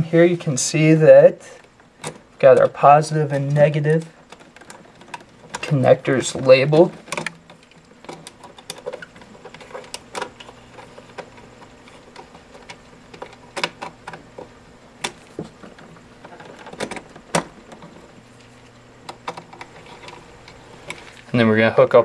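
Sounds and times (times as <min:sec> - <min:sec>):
steady low hum: 0:00.0 - 0:22.0
cables and screwdriver clicking: 0:06.7 - 0:18.0.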